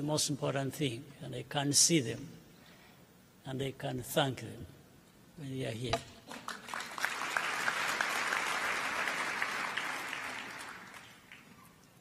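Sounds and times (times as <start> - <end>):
audience applauding: 6.3 - 11.6.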